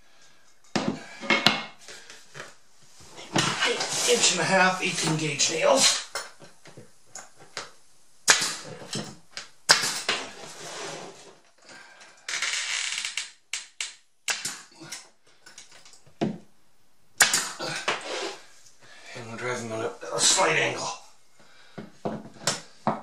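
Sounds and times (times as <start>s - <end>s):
nail gun shots: 8.2s - 8.7s, 9.7s - 10.2s, 13.6s - 14.7s, 17.2s - 17.6s
pneumatic hiss: 17.3s - 18.6s.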